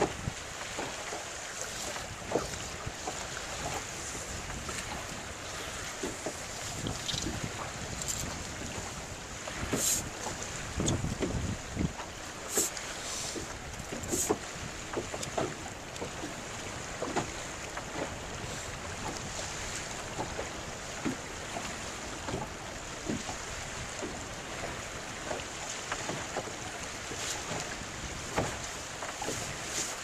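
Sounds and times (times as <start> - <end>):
wind on microphone: 0.0 - 0.4, 1.8 - 15.6
water slapping against boat hull: 0.0 - 30.0.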